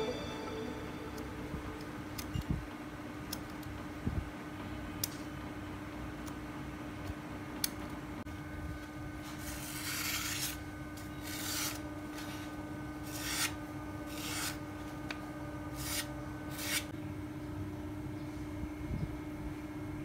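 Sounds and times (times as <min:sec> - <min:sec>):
knife cutting through paper: 0:09.3 - 0:10.6, 0:11.2 - 0:14.6, 0:15.8 - 0:16.9.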